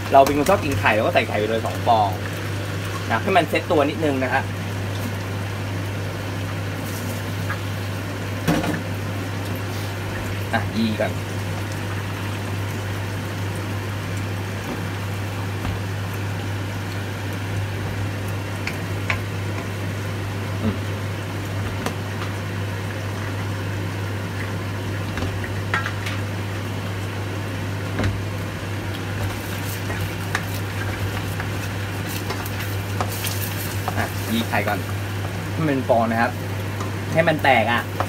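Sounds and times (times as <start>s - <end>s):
food sizzling in oil: 0.0s - 38.0s.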